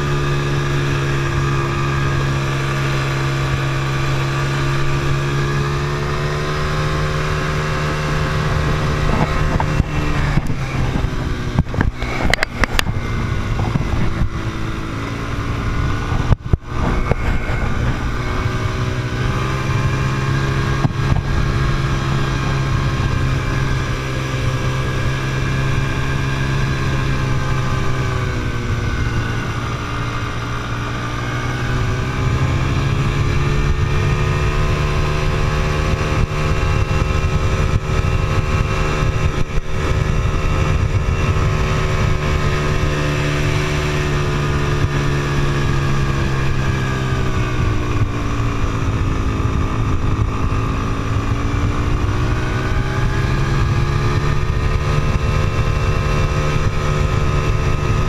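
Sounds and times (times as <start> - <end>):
quad bike engine running: 0.0 - 58.0.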